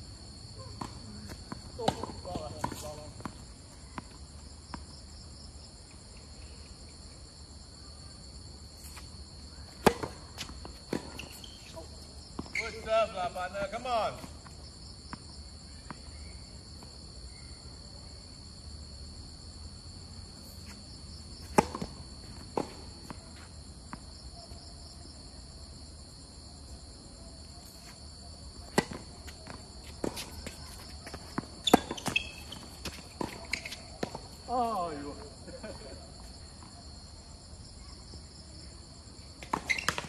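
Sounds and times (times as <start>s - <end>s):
high-pitched insect chorus: 0.0s - 40.0s
tennis ball bouncing on court: 0.8s - 3.4s, 9.7s - 11.7s, 21.4s - 22.8s, 28.7s - 34.3s.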